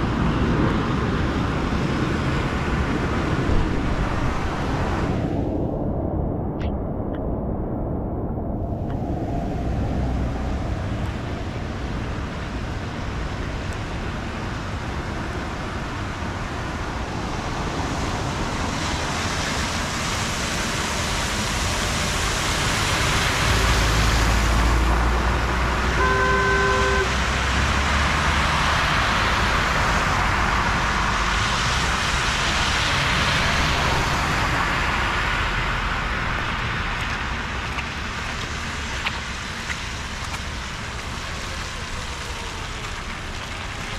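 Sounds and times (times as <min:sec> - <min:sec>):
car horn toot: 0:25.9 - 0:27.1
tyres hissing through water: 0:38.1 - 0:43.9.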